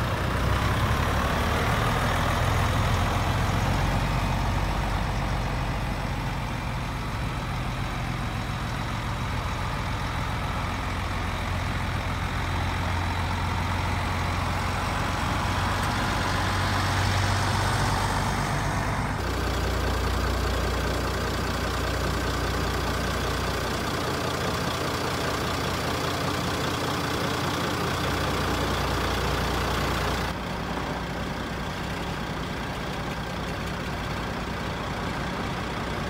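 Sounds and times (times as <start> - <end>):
truck diesel engines idling: 0.0 - 36.0.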